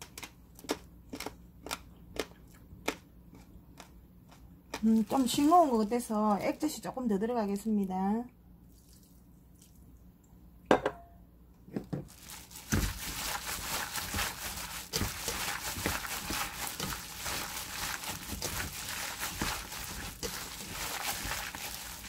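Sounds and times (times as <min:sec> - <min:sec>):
wet squishing: 0:04.8 - 0:06.7, 0:08.7 - 0:10.0, 0:12.1 - 0:22.0
plastic gloves crinkling: 0:04.8 - 0:07.7, 0:12.0 - 0:22.0
knocks against metal bowl: 0:10.7 - 0:11.1.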